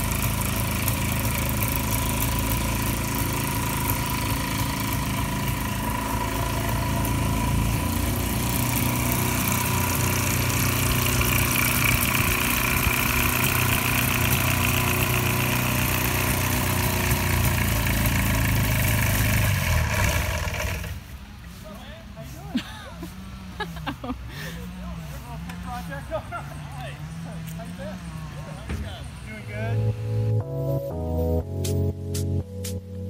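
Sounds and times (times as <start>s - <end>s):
propeller aircraft engine running: 0.0s - 21.2s.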